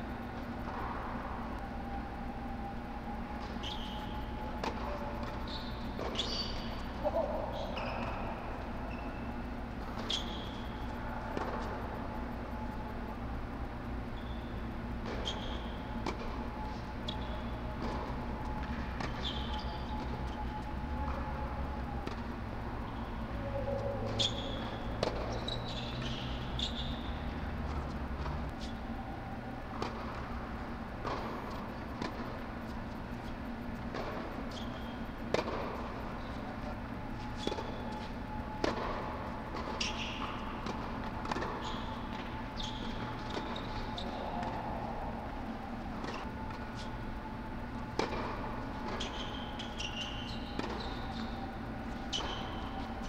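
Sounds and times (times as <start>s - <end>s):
steady low hum: 0.0s - 53.0s
sneakers squeaking on court: 3.6s - 4.2s, 4.9s - 11.8s, 14.1s - 16.0s, 18.5s - 20.4s, 24.1s - 27.9s, 32.9s - 35.6s, 39.5s - 40.5s, 41.2s - 44.6s, 48.8s - 52.9s.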